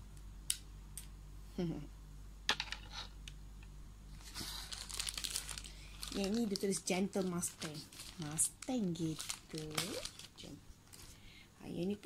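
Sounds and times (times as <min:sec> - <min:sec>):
packaging pouch crinkling: 0:04.2 - 0:11.2.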